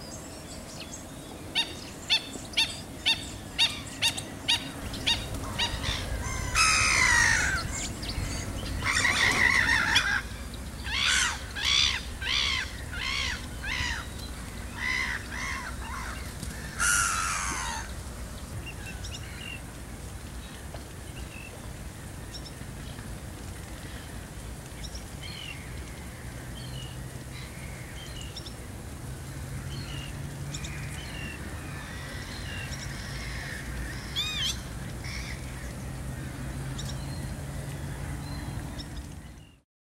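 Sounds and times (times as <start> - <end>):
wetland birds calling: 0.0 - 19.6
low steady hum: 0.0 - 39.4.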